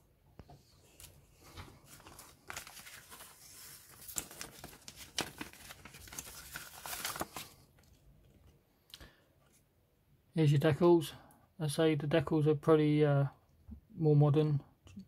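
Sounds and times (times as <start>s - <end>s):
paper rustling and crinkling: 0.6s - 8.0s.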